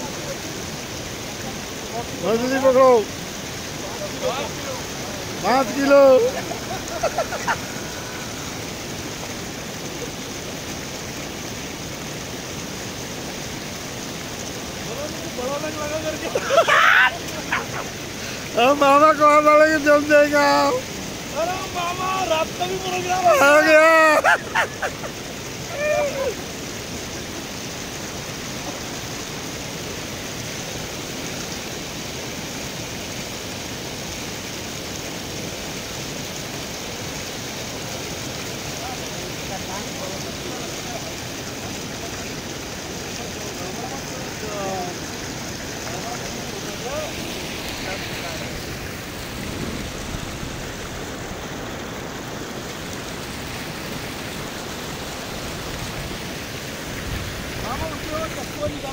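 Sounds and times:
water rushing over rocks: 0.0s - 58.9s
man's voice: 18.5s - 24.4s, 57.6s - 58.9s.

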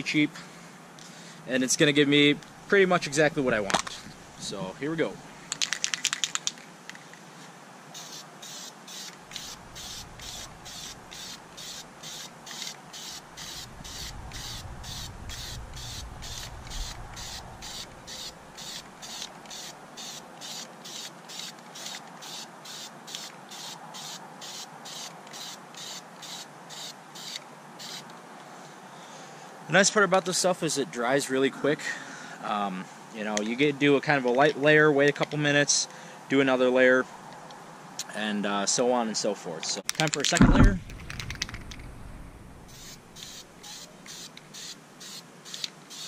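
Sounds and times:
spray paint can hissing: 7.9s - 28.0s, 42.7s - 46.0s.

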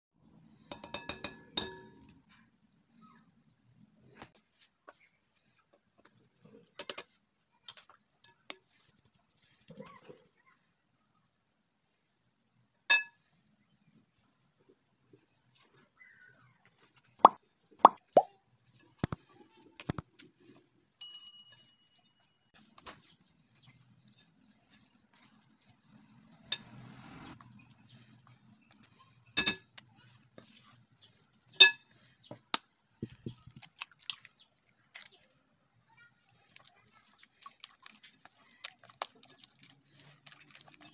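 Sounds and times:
spatula scraping glass bowl: 23.5s - 28.8s.

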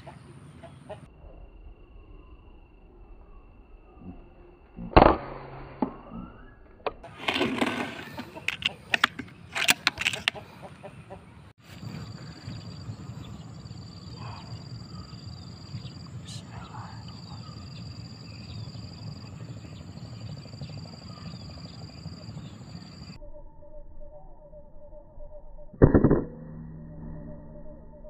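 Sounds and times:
insect chirring: 11.8s - 25.8s.

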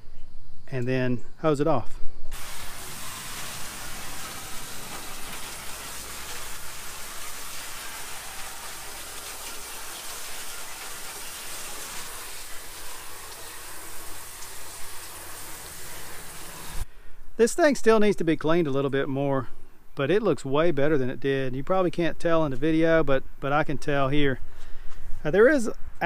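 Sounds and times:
hose water spraying on metal: 2.3s - 16.8s.

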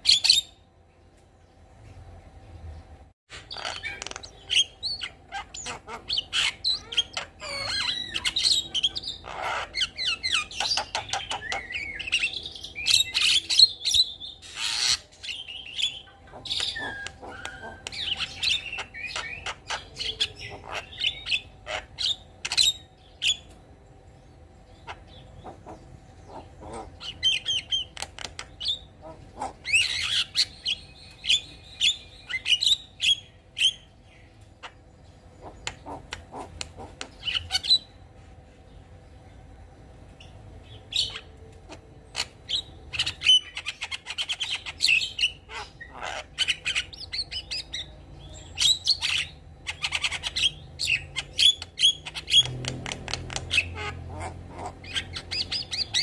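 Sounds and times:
bird singing whistles and clicks: 16.6s - 18.1s, 51.4s - 53.6s.

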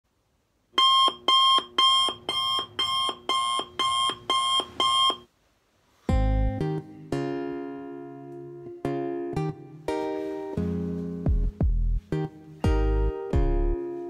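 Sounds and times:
alarm beeping: 0.8s - 5.3s
guitar music: 6.1s - 14.0s.

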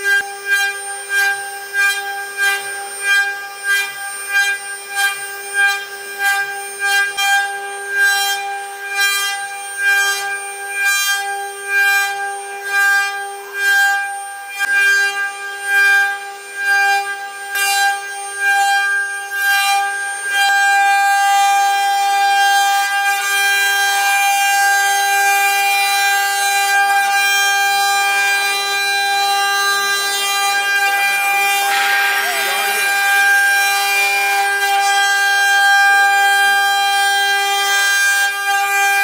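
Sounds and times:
router spindles whining: 14.1s - 39.0s
cutters carving wood: 18.8s - 39.0s.

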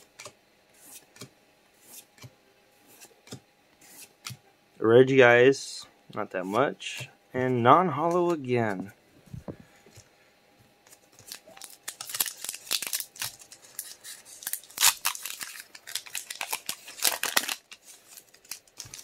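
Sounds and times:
foil wrapper ripping and crinkling: 11.2s - 19.0s.

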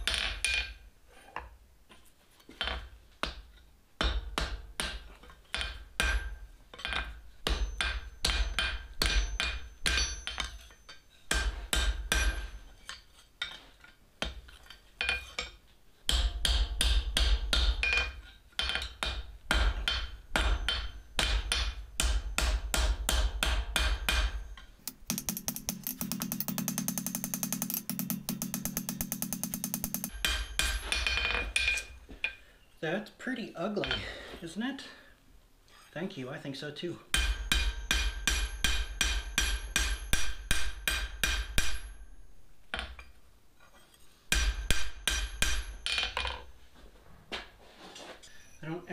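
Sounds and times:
hammer striking steel on anvil: 4.0s - 13.0s, 16.1s - 32.4s, 37.1s - 42.0s, 44.3s - 46.4s
anvil ringing: 7.5s - 11.0s, 24.0s - 32.0s, 37.2s - 42.0s
fast steady rattle: 24.9s - 30.2s.

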